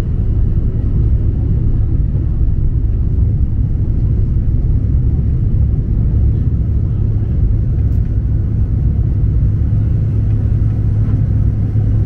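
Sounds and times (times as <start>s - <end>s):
constant low hum: 0.0s - 12.0s
jet engine low rumble: 0.0s - 12.0s.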